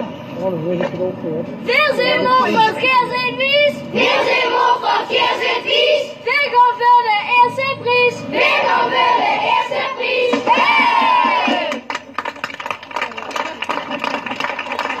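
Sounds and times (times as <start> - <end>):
children singing in unison: 3.9 - 6.2, 8.3 - 11.7.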